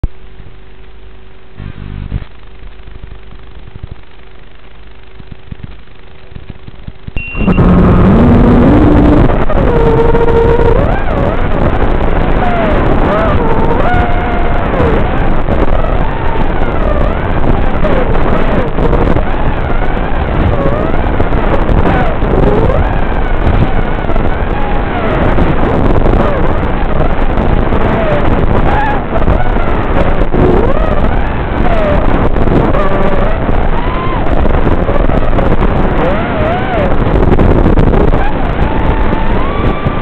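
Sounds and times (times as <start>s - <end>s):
steady rushing noise: 0.0s - 40.0s
quadcopter motors whining: 7.3s - 40.0s.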